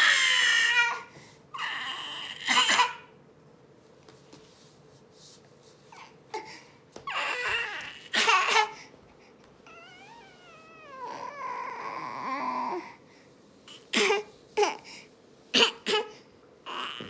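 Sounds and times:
toddler crying: 0:00.0 - 0:03.0, 0:06.4 - 0:08.8, 0:09.7 - 0:12.8, 0:16.7 - 0:17.0.

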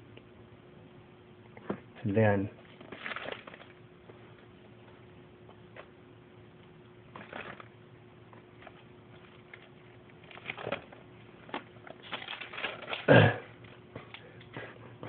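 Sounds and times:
faint steady hum: 0:00.0 - 0:15.0
rustling and clicking handling: 0:02.6 - 0:04.4, 0:07.1 - 0:14.7.

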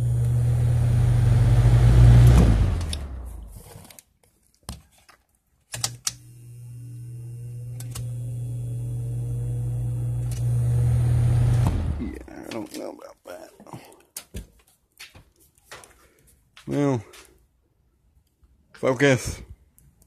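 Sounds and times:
fan motor buzzing: 0:00.0 - 0:03.3, 0:06.1 - 0:12.1
fan blades spinning up: 0:00.0 - 0:03.5, 0:06.2 - 0:12.6
clicks: 0:02.2 - 0:03.1, 0:07.7 - 0:08.2, 0:10.2 - 0:10.6.

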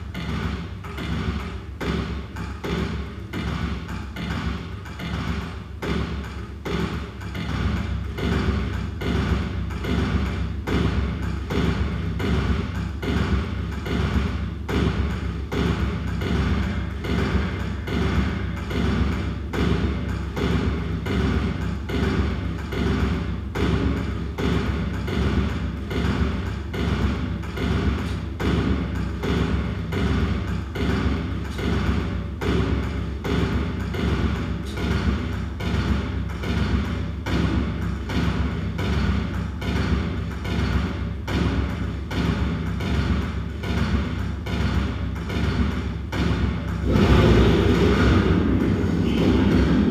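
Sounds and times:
electronic beat of thuds and clicks: 0:00.0 - 0:49.9
low rumble: 0:46.7 - 0:49.9.

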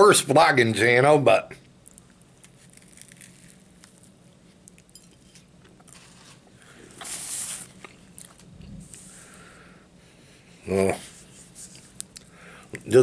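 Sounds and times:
paper napkin rubbing: 0:07.0 - 0:07.8.

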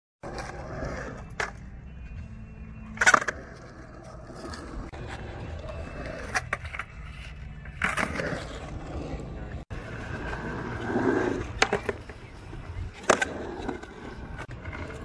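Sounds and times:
skateboard wheels rolling on concrete: 0:00.2 - 0:15.0
skateboard clacking on concrete: 0:11.2 - 0:14.0.

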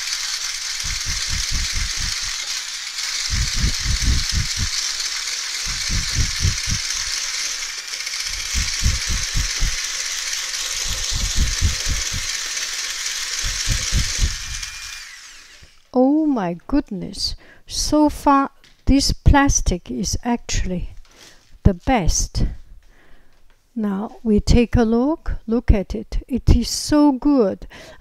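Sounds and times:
electric mixer whipping cream: 0:00.0 - 0:15.9.

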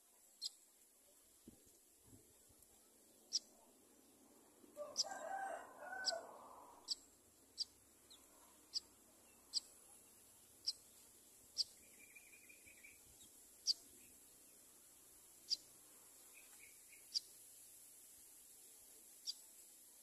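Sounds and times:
rooster crowing: 0:04.8 - 0:06.7.

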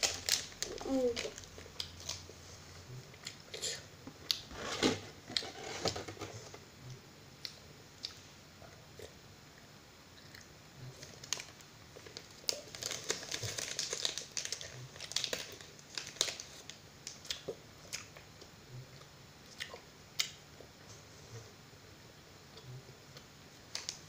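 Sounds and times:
foil wrapper crinkling: 0:00.0 - 0:02.2, 0:11.0 - 0:17.2.

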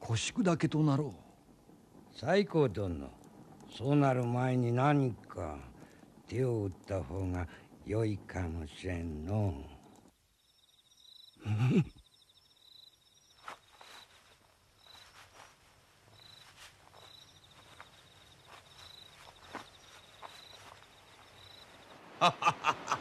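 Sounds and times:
insects chirping: 0:00.0 - 0:23.0.

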